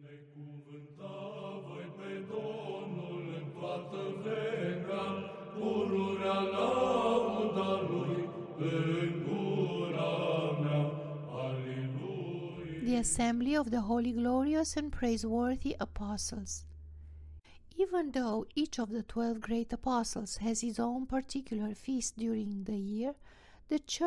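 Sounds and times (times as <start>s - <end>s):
church chant singing: 0.0s - 14.2s.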